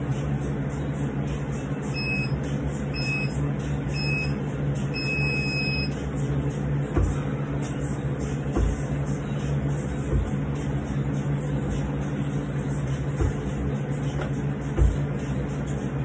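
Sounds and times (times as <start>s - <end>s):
steady hum: 0.0s - 16.0s
interval timer beeps: 2.0s - 2.4s, 3.0s - 3.4s, 4.0s - 4.4s, 5.0s - 5.9s.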